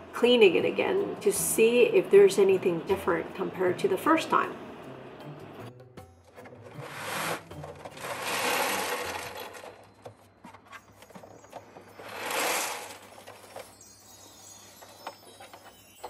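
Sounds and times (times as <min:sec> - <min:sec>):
cat litter pellets sliding in drum: 0:06.4 - 0:09.8, 0:11.8 - 0:13.7.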